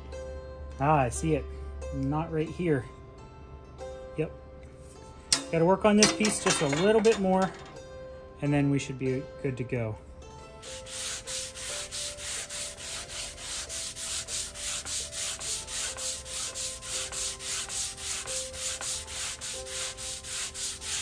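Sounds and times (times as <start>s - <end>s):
sanding block rubbing on wood: 10.6s - 21.0s.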